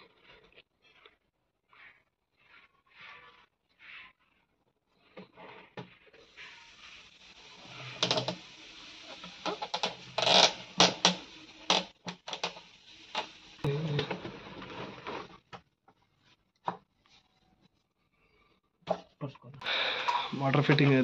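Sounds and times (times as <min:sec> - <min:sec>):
steady hiss: 0:06.2 - 0:14.3, 0:19.6 - 0:21.0
plastic pipe fittings clicking: 0:08.0 - 0:13.4.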